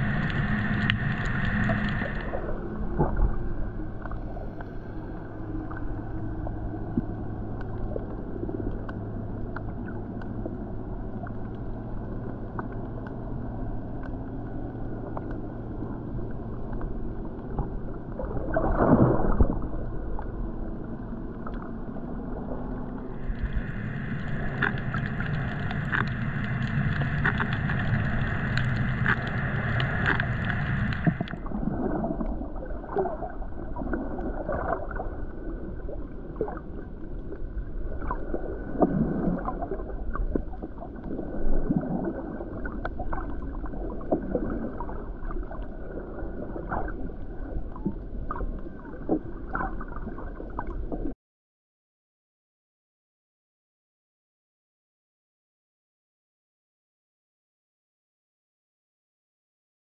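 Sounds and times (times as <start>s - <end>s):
bright hiss: 0.0s - 2.4s
low swells of water: 0.0s - 51.2s
small underwater clicks and crackles: 0.0s - 51.2s
water gurgling underwater: 0.0s - 51.2s.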